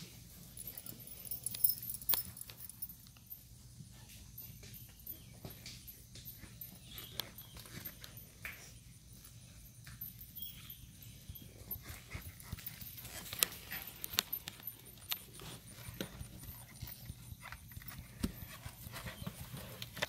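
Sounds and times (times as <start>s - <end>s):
hoofbeats on dirt track: 9.8s - 20.0s.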